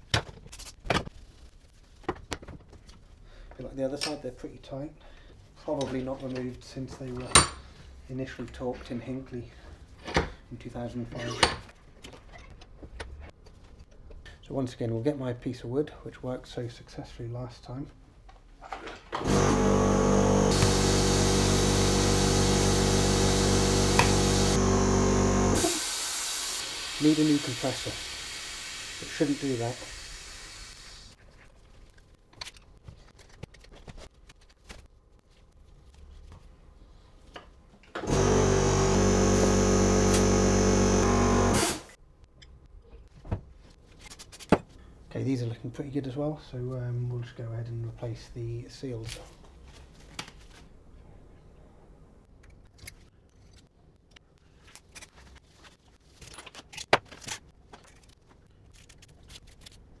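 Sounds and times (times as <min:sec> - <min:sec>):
air compressor running: 0:19.2 - 0:29.2, 0:38.0 - 0:41.9
compressed air hissing: 0:25.6 - 0:31.2
metal parts clicking and knocking: 0:32.3 - 0:34.4.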